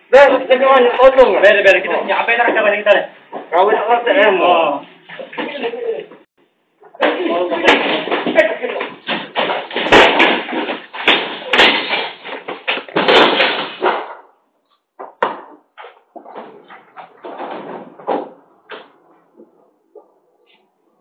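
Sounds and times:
clattering thuds and bangs: 7.0 - 14.4, 15.0 - 19.5
scattered knocks and bumps: 7.0 - 14.4, 15.0 - 19.6.

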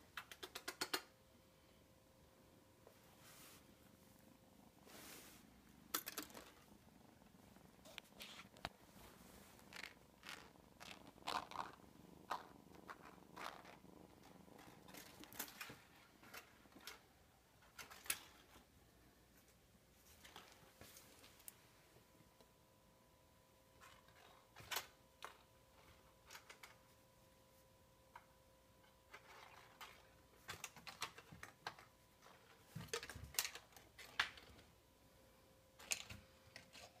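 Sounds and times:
kitten purring: 0.1 - 1.8, 2.5 - 19.1
faint clicks and rustles: 2.8 - 18.7, 23.8 - 34.8.

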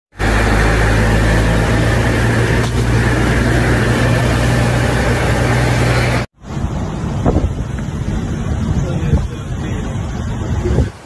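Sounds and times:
heavy rain: 0.1 - 11.0
strong wind blowing: 0.2 - 11.0
wind buffeting microphone: 6.4 - 11.0.

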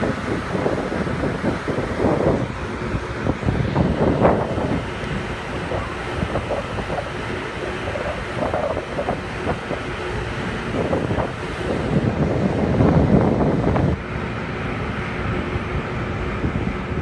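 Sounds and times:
hvac units rushing: 0.0 - 17.0
wind buffeting microphone: 0.0 - 17.0.

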